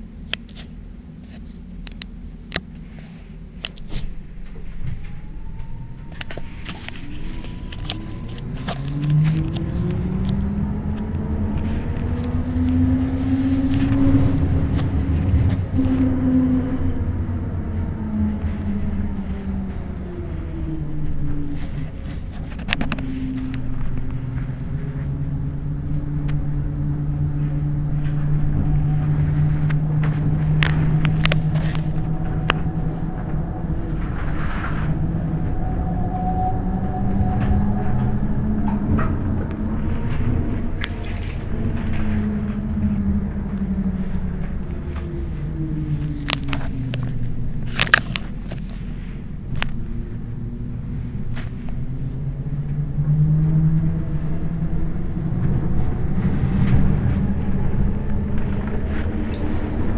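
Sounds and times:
low rumble: 0.0 - 59.9
tram electric drive whining: 0.0 - 59.9.

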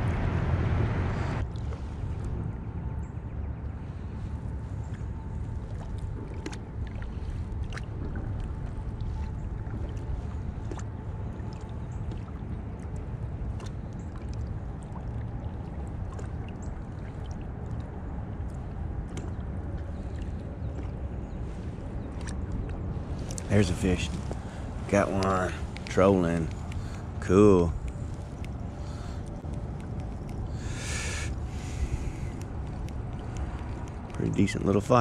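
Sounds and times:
low rumble of water: 0.0 - 35.0
wind noise: 21.4 - 27.2.

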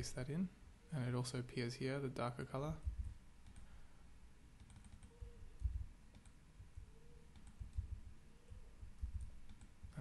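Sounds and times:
soft low thumps: 2.8 - 3.2, 5.2 - 5.9, 7.6 - 8.1, 8.8 - 10.0
computer mouse clicking: 3.4 - 3.7, 4.6 - 8.0, 9.0 - 10.0.

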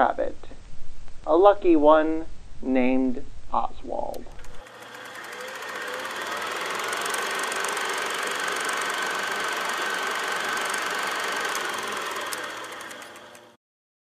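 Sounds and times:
film projector whirring: 4.1 - 13.6.

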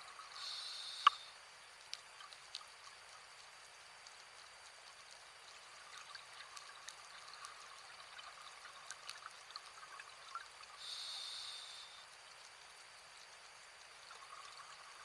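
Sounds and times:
crackling exhaust bubbles: 0.0 - 15.0
regulator inhale hiss: 0.3 - 1.4, 10.8 - 12.1.

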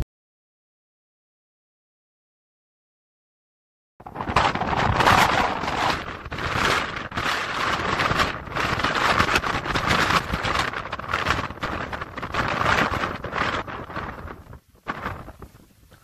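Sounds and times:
wind buffeting microphone: 4.0 - 16.0.

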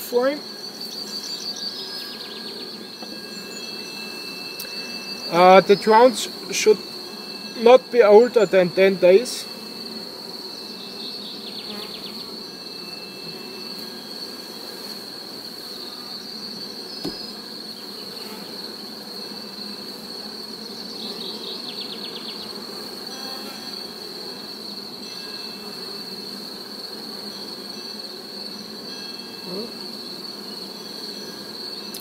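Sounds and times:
high-pitched insect trill: 0.0 - 32.0
honeybees buzzing: 0.0 - 32.0
short knock: 17.0 - 17.2.

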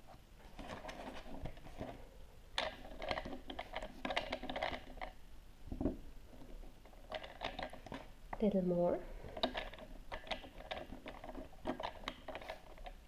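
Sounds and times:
plastic toy clicking and rattling: 2.6 - 5.2, 6.8 - 8.1, 9.3 - 13.0.

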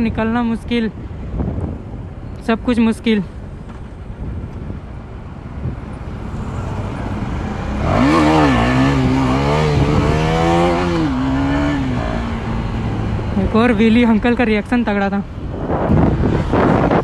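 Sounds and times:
wind rumble: 0.0 - 17.0
motorcycle engine revving: 6.0 - 13.8.

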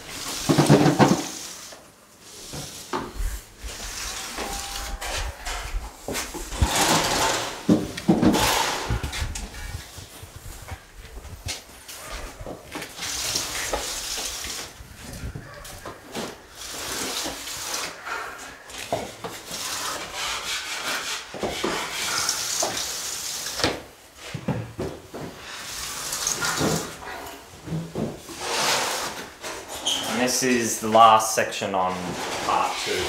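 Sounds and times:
tool scraping joint compound: 2.5 - 9.8, 15.5 - 22.9, 28.0 - 31.0, 31.9 - 33.0.

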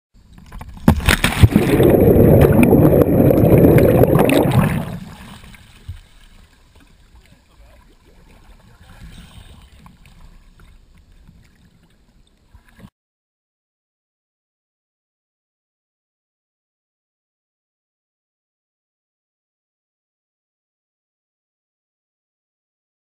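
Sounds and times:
faint muffled water sounds: 0.2 - 12.9
churning water: 0.4 - 12.9
camera splashing into water: 0.7 - 5.6.

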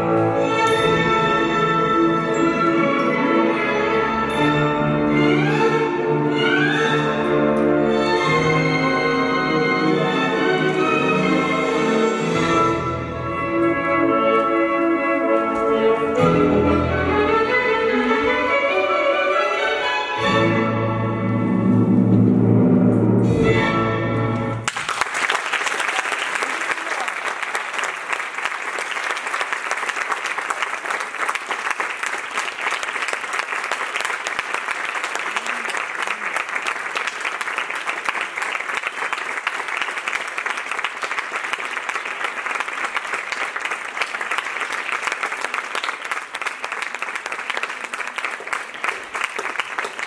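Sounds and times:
audience applauding: 24.6 - 50.0.

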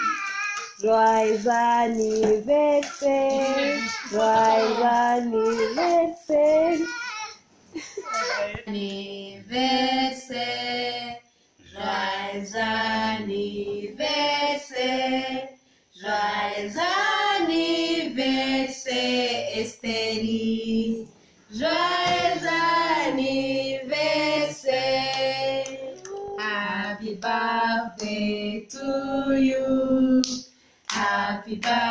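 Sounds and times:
voices singing led by a woman: 0.8 - 6.9, 8.5 - 31.9.

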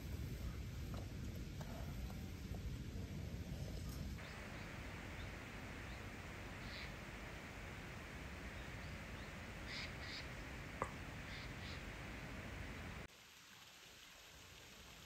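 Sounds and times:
steady background hiss: 0.0 - 15.0
bird calls: 4.2 - 13.1.

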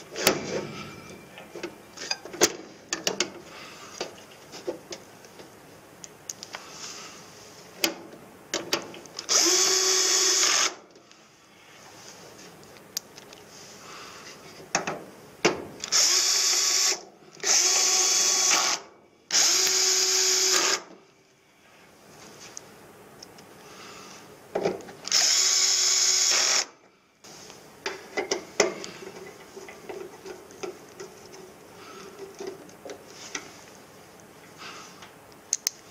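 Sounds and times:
cordless drill driving screws: 9.2 - 10.8, 15.8 - 20.9, 25.0 - 26.7.

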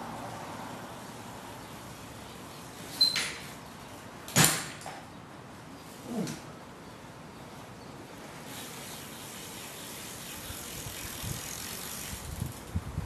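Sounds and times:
bike freewheel ratchet ticking: 8.5 - 12.9.

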